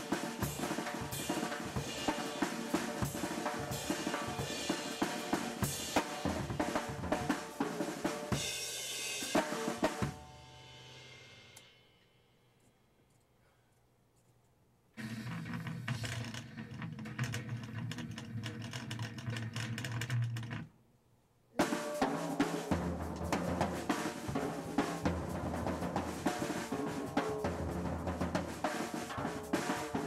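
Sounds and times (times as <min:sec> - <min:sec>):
drum rolls and fills: 0:00.0 - 0:11.3, 0:21.6 - 0:30.0.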